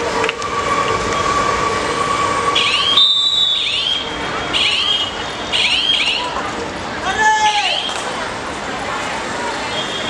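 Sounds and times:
crowd noise: 0:00.0 - 0:10.0
high rising whistles: 0:00.3 - 0:04.2.

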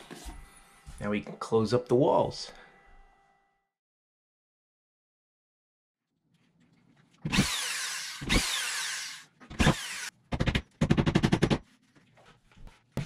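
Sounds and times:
power screwdriver whirring: 0:07.3 - 0:10.1.

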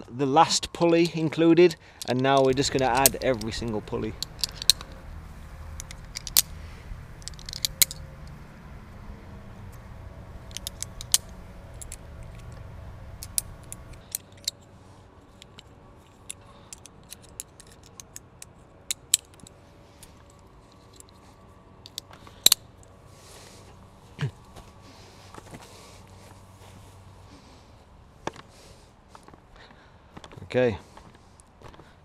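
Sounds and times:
metal rigging hardware clinking: 0:01.6 - 0:22.9.

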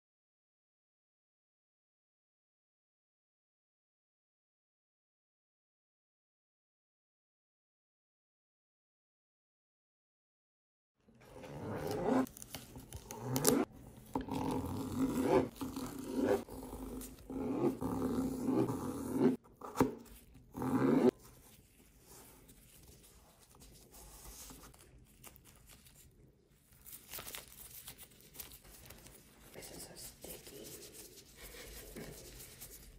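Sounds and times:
knife slicing cucumber on board: 0:18.4 - 0:21.1.

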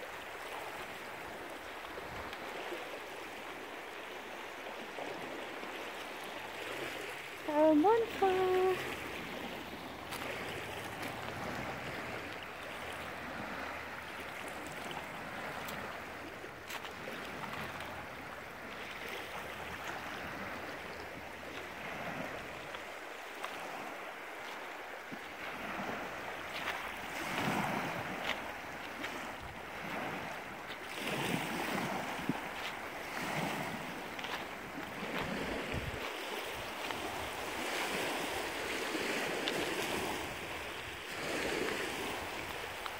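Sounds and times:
waves lapping on pebble shore: 0:00.0 - 0:42.9
wind buffeting microphone: 0:34.7 - 0:40.6.

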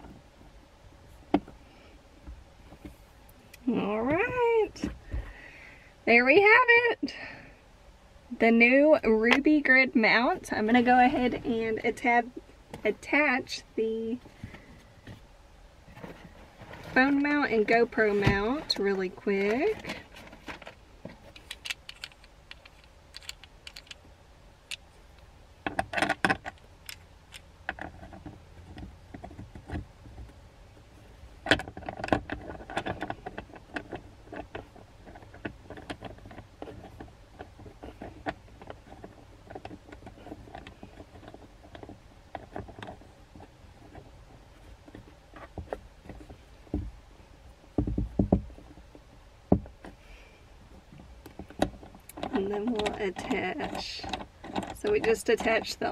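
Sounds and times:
phone mount clicks and rattles: 0:21.3 - 0:24.0.

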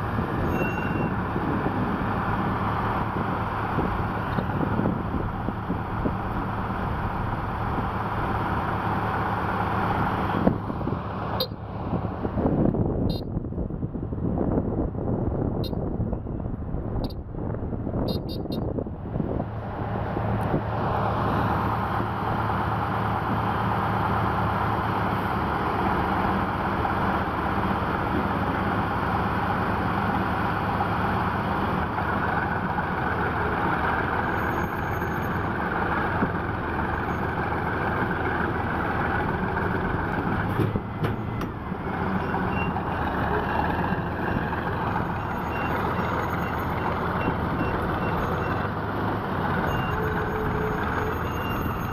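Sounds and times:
heavy diesel engines running: 0:00.0 - 0:51.9
reversing alarm beeping: 0:45.0 - 0:48.7, 0:49.7 - 0:51.9.

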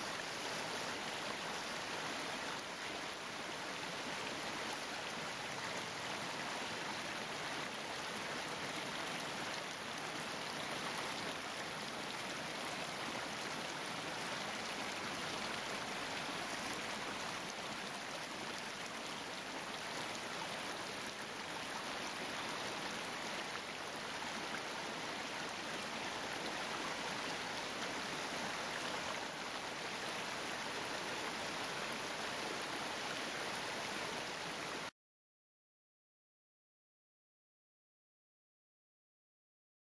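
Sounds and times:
creek splashing over rocks: 0:00.0 - 0:34.9.

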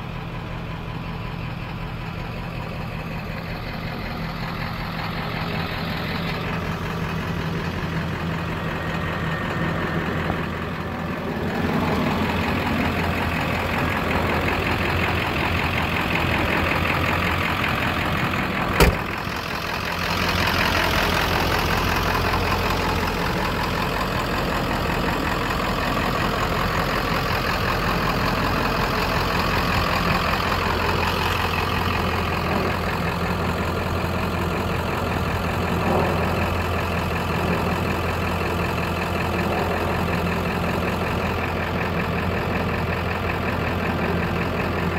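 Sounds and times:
diesel engine idling: 0:00.0 - 0:44.9
sharp knock: 0:18.8 - 0:19.1.

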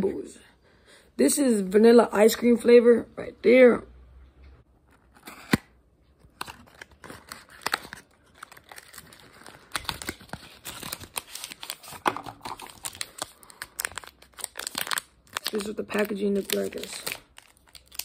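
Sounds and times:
packaging crinkling and rustling: 0:04.9 - 0:18.0.

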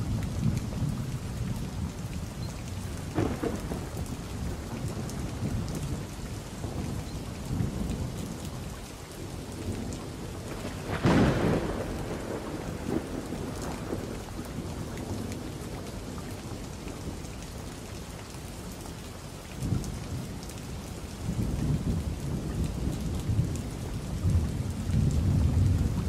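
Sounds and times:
rain hiss: 0:00.0 - 0:26.0
thunder rumbling: 0:02.9 - 0:08.7, 0:09.5 - 0:16.2, 0:21.3 - 0:26.0
loud thunder clap: 0:03.2 - 0:04.0, 0:10.8 - 0:14.1.

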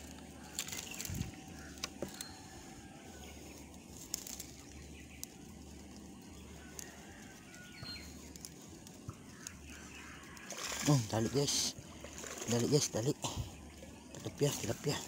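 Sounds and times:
wind rumble on microphone: 0:00.8 - 0:01.8.

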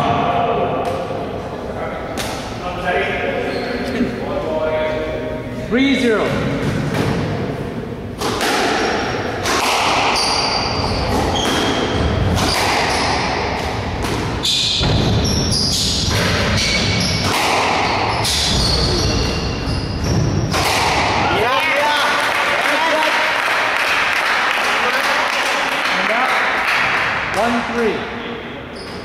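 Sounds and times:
shoes squeaking on wooden floor: 0:03.4 - 0:04.2, 0:10.2 - 0:13.4, 0:14.4 - 0:20.5
squash ball thudding: 0:08.2 - 0:21.4.

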